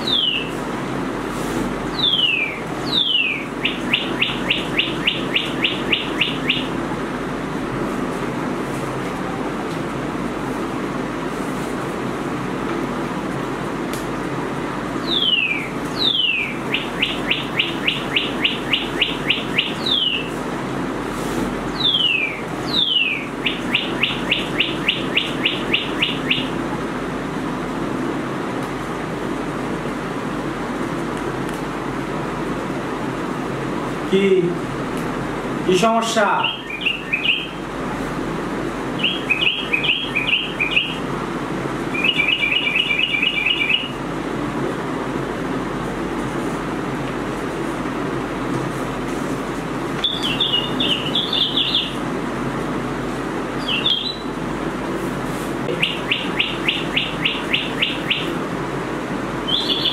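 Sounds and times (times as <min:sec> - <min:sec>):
recorded birdsong through small speaker: 0:00.0 - 0:00.6, 0:01.8 - 0:07.0, 0:14.8 - 0:20.5, 0:21.6 - 0:26.8, 0:35.6 - 0:37.8, 0:38.6 - 0:41.1, 0:41.8 - 0:44.1, 0:50.0 - 0:52.0, 0:53.5 - 0:54.5, 0:55.7 - 0:58.5, 0:59.3 - 0:59.9
steady low hum: 0:00.0 - 0:59.9.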